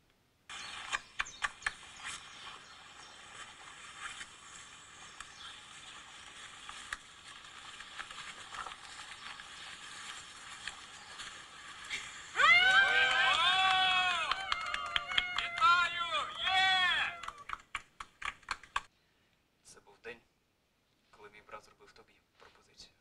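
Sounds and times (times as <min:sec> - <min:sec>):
clicks and crackles: 0:00.0 - 0:12.4, 0:17.2 - 0:18.9
steady outdoor hiss: 0:00.0 - 0:23.0.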